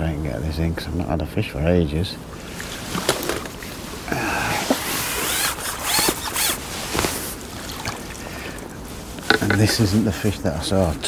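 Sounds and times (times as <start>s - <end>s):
water splashing and sloshing: 2.1s - 11.0s
sharp clicks and knocks: 9.2s - 9.8s.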